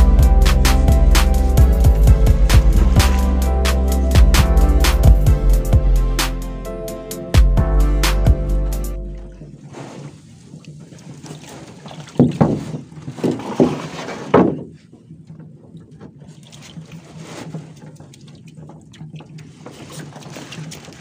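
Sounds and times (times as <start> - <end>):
low steady hum: 0.0 - 9.7
water around a boat: 0.0 - 21.0
loud thumps on a boat: 12.1 - 14.8.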